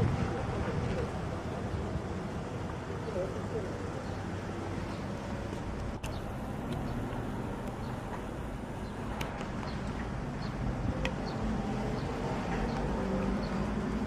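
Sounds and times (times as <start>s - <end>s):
low outdoor rumble: 0.0s - 14.0s.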